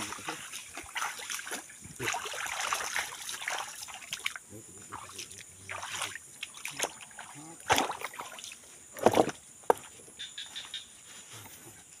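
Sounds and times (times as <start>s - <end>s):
water splashes: 0.0s - 9.4s
footsteps on wooden planks: 9.0s - 10.0s.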